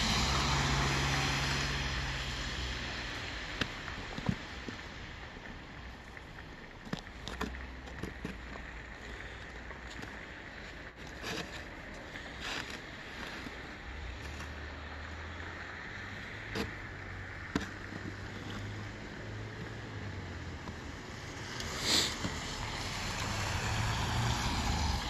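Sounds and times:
snow shovel scraping ice: 11.0 - 14.9, 21.6 - 23.5.

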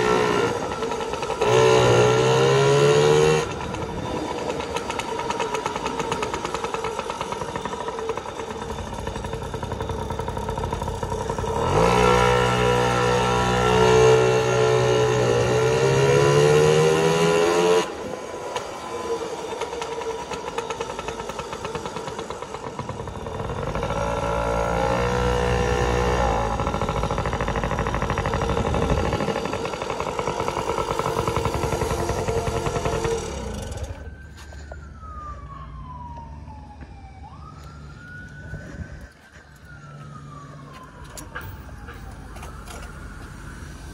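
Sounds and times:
small motorbike engine revving: 0.0 - 34.6.

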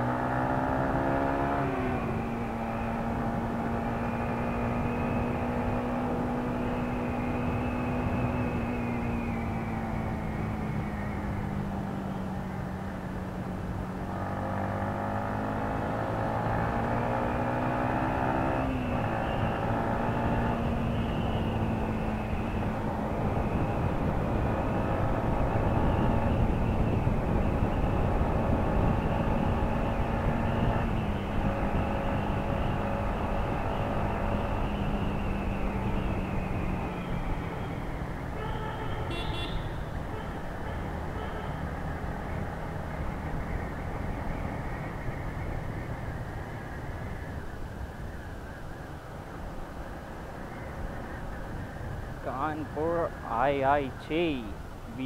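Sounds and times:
motorcycle engine revving: 0.0 - 8.6
wind rush on microphone: 20.2 - 33.3.

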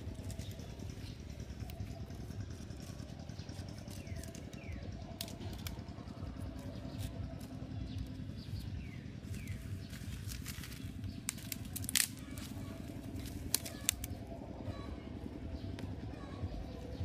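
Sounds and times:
twig fire crackling: 0.0 - 14.3
steady low rumble: 0.0 - 17.0.

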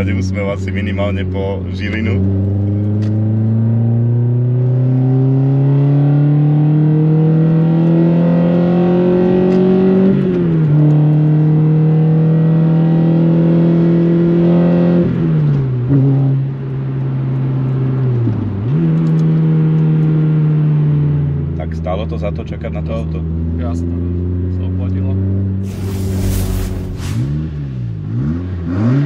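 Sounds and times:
car engine accelerating through gears: 2.2 - 16.4, 25.7 - 29.0.

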